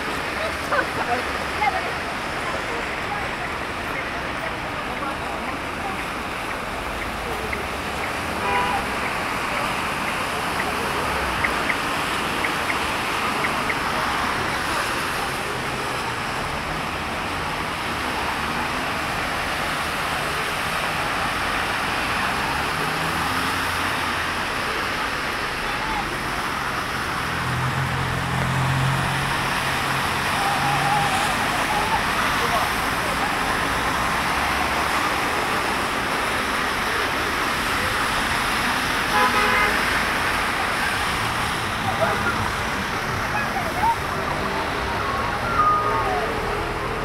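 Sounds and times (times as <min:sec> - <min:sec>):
car tyres splashing through water: 0:00.0 - 0:45.8
heavy rain falling: 0:00.0 - 0:47.0
car horn: 0:08.4 - 0:08.9, 0:39.1 - 0:40.0.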